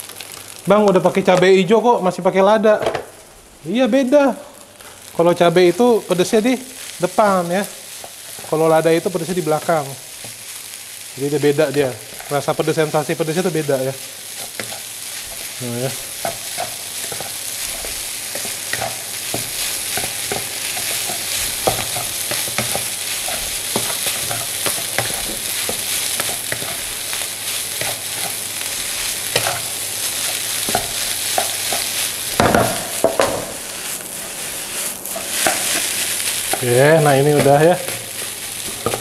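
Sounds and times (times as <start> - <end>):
rice sizzling in a wok: 0.0 - 39.0
wooden spatula scraping and tapping: 14.4 - 15.5, 16.2 - 27.1, 27.7 - 28.4, 29.3 - 29.7, 30.3 - 33.6, 34.2 - 39.0.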